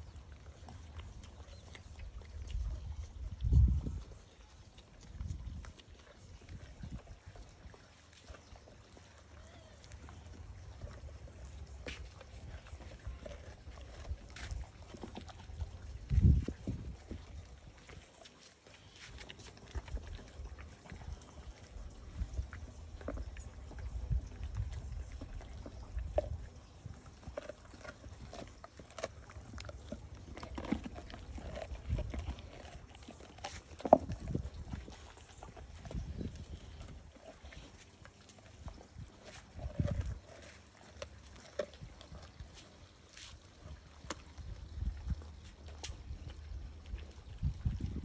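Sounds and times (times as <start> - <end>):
dog chewing meat and bone: 0.0 - 48.0
teeth clicking on bone: 19.2 - 42.4.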